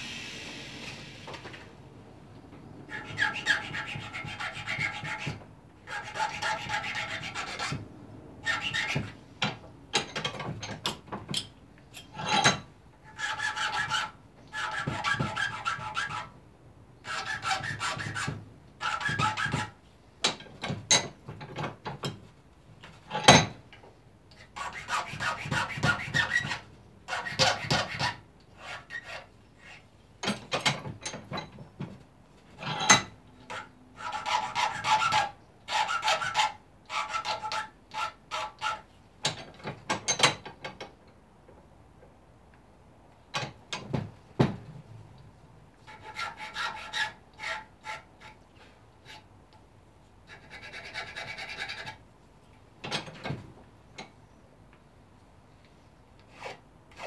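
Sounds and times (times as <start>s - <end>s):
hand file rasping on metal: 2.9s - 7.8s, 8.4s - 9.2s, 13.0s - 16.3s, 17.0s - 19.8s, 24.4s - 29.8s, 32.6s - 38.9s, 45.8s - 48.4s, 50.3s - 52.0s, 56.3s - 57.0s.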